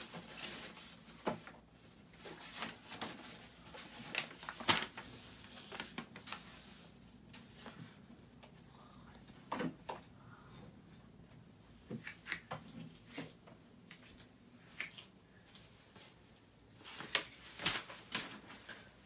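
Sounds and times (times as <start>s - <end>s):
paper rustling and crackling: 0.0s - 7.8s, 16.8s - 19.0s.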